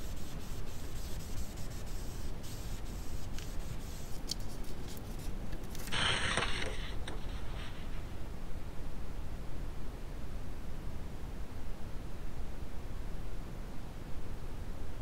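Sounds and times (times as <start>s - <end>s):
hand rubbing paper: 0.0s - 8.3s
paper scrape: 0.0s - 8.3s
low steady hum: 0.0s - 15.0s.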